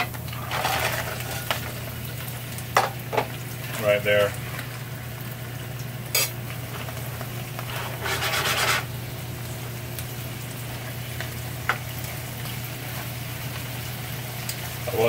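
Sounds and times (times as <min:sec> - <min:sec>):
crab shells scraping in a pan: 0:00.0 - 0:09.3
light oil sizzle: 0:00.0 - 0:15.0.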